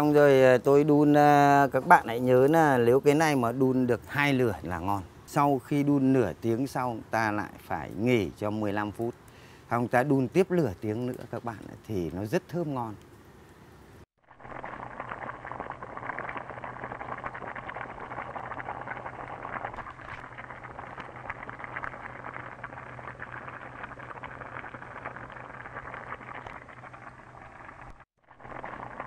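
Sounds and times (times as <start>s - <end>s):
wood fire crackling: 6.6s - 13.6s, 14.4s - 29.0s
stew bubbling: 14.2s - 29.0s.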